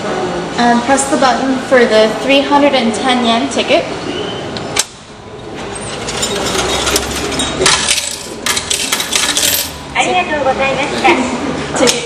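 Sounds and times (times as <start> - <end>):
ticket machine dispensing: 5.5 - 9.8
coins clinking into metal tray: 5.8 - 9.8.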